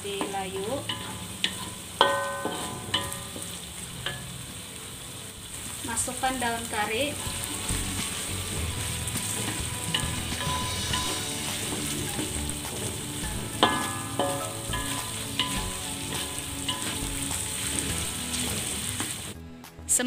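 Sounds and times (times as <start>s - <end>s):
food sizzling in hot oil: 0.0s - 19.4s
spatula knocking on wok: 8.1s - 18.7s.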